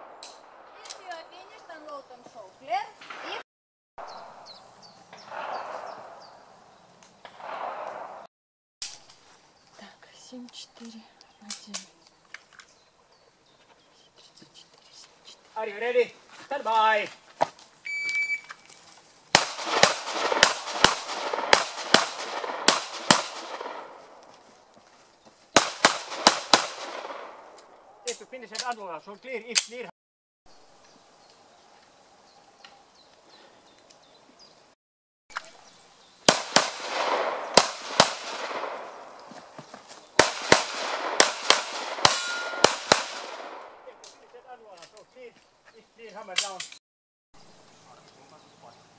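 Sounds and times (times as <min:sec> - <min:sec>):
pistol shots: 0:05.2 - 0:06.3, 0:07.2 - 0:08.3, 0:19.3 - 0:24.1, 0:25.6 - 0:27.6, 0:36.3 - 0:39.0, 0:40.2 - 0:43.8
shot timer beep: 0:17.9 - 0:18.5.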